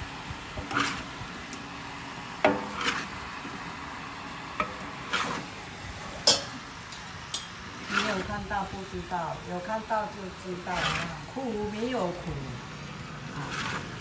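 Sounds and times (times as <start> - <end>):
food sizzling in a wok: 0.0 - 14.0
metal spatula scraping a pan: 0.6 - 1.1, 2.5 - 3.2, 4.6 - 6.5, 7.8 - 8.5, 10.6 - 11.3, 13.3 - 14.0.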